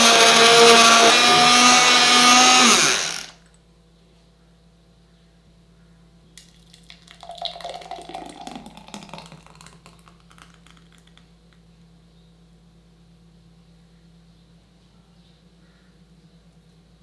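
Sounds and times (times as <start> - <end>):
liquid glugging into glass: 6.4 - 11.2.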